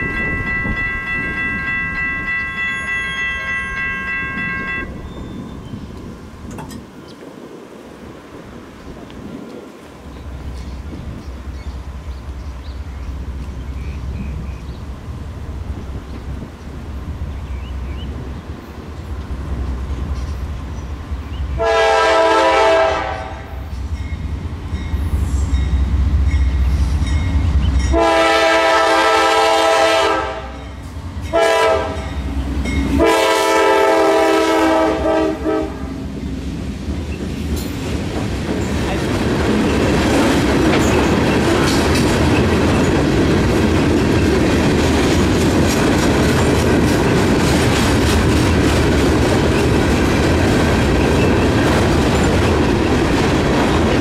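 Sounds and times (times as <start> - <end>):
diesel locomotive engine: 0.0 - 54.0
train horn blasts: 0.2 - 5.0, 21.6 - 23.7, 27.9 - 32.3, 32.9 - 36.1
train wheels clattering over rails: 36.1 - 54.0.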